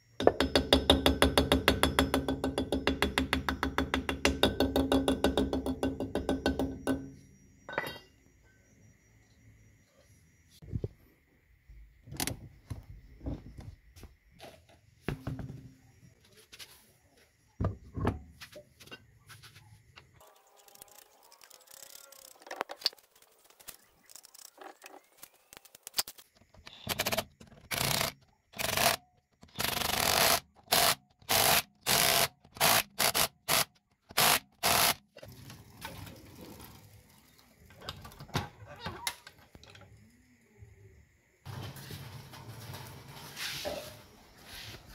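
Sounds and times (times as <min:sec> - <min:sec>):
impact wrench bursts: 0:29.6 - 0:35.0.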